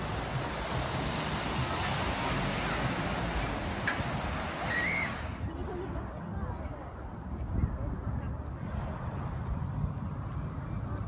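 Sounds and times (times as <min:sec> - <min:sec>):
sea surf: 0:00.0 - 0:05.6
wind: 0:00.0 - 0:11.0.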